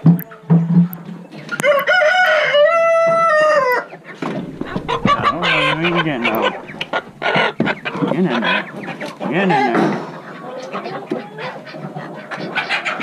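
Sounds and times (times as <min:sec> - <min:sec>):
rooster crowing: 0:01.6 - 0:03.7
chickens clucking: 0:04.2 - 0:13.0.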